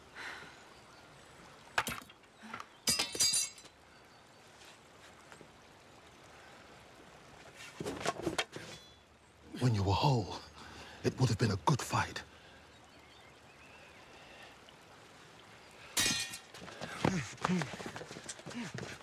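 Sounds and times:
ringing metal clash: 2.9s - 3.7s.

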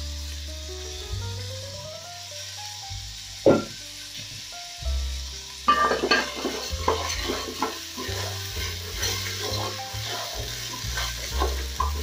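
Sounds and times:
rice sizzling in oil: 0.0s - 12.0s
spoon scraping pot: 5.7s - 12.0s.

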